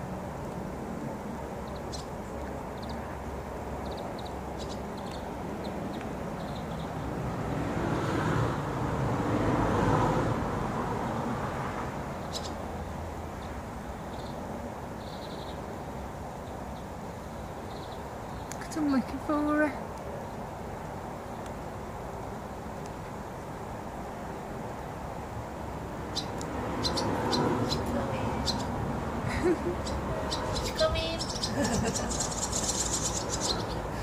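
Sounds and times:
traffic hum: 0.0 - 34.0
vehicle passing: 2.7 - 16.0, 24.3 - 34.0.

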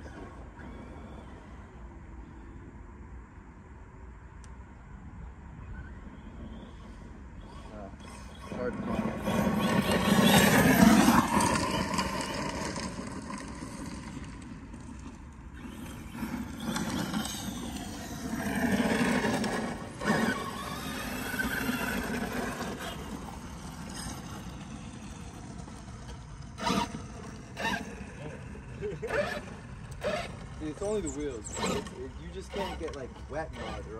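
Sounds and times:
electric motor whining: 5.8 - 33.9.

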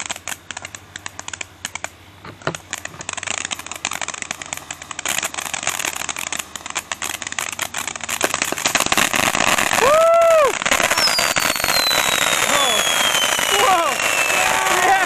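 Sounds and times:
firework fountain crackling: 0.0 - 15.0.

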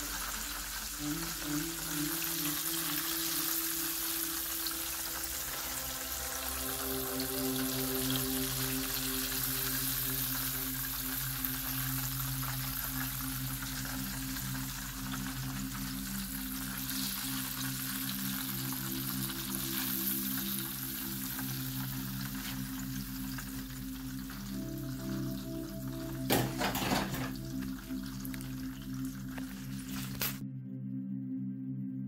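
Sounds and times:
fish deep-frying in oil: 0.0 - 30.4.

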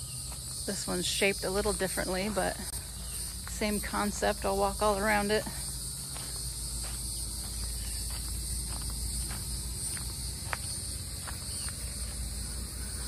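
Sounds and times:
footsteps on dirt: 0.0 - 13.0
insects chorus: 0.0 - 13.0.

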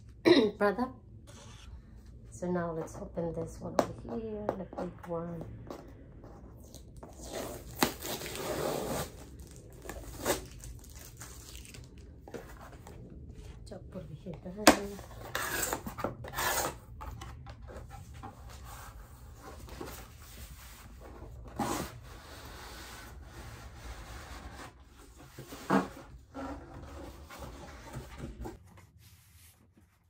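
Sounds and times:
cardboard scraping and rubbing: 7.0 - 13.0.

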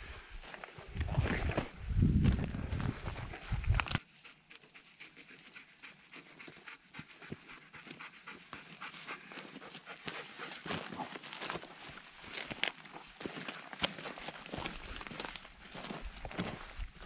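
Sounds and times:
footsteps crunching on grass: 0.0 - 4.0, 10.1 - 17.0
wind rumbling on microphone: 0.0 - 4.0
heavy panting: 2.8 - 12.1.

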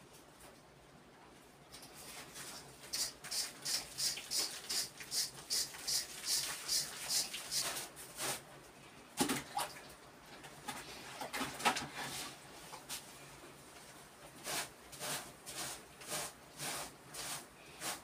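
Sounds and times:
hand tool scraping stone wall: 14.4 - 18.0.

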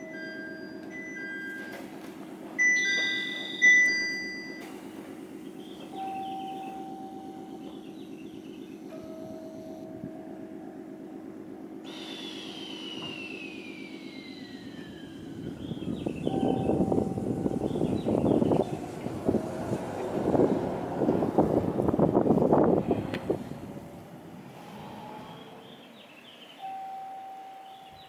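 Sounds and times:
train equipment hum: 0.0 - 28.0
loud ringing tones: 2.6 - 4.8, 5.9 - 7.9, 8.8 - 20.0
high whine falling in pitch: 9.2 - 19.6.

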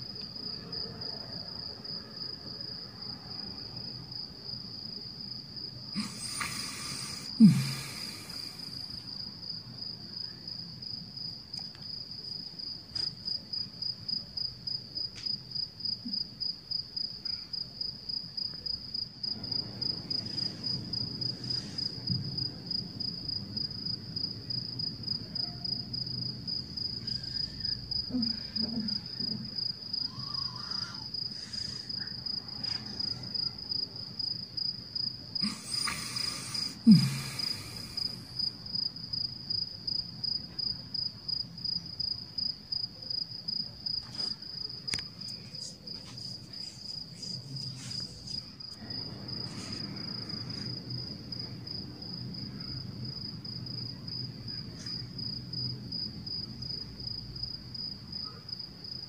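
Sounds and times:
insect chirring: 5.9 - 9.3, 26.5 - 42.5, 43.5 - 51.1.

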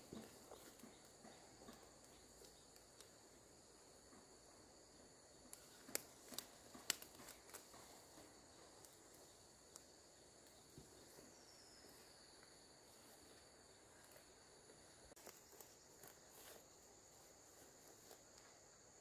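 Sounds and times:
ferns snapping and rustling: 5.5 - 7.9.

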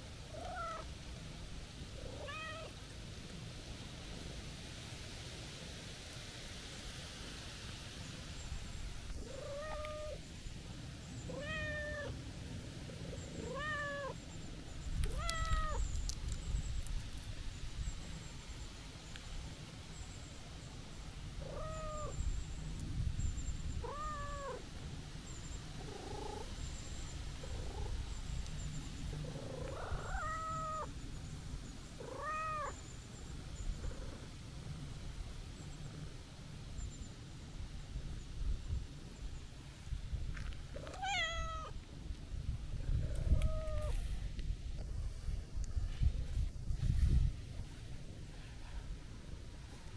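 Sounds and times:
cat meowing: 2.2 - 2.7, 9.3 - 10.2, 11.3 - 12.1, 13.4 - 14.2, 15.1 - 15.8, 21.5 - 22.1, 23.8 - 24.6, 29.7 - 30.9, 32.1 - 32.8, 40.9 - 41.7, 43.3 - 44.0.

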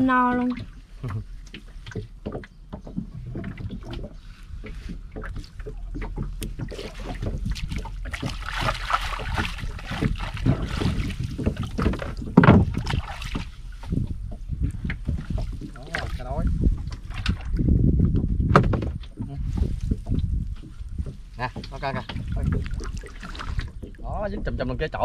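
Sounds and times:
water splashing and dripping: 0.0 - 18.3, 19.0 - 24.8
knocks against boat hull: 6.0 - 16.2, 18.1 - 24.8.

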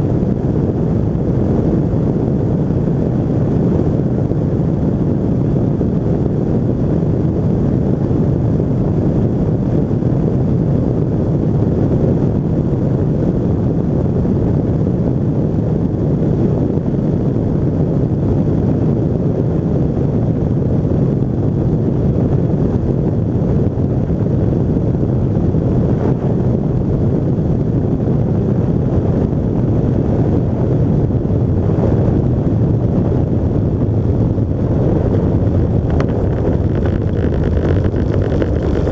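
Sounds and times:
wind rushing over microphone: 0.0 - 38.9.

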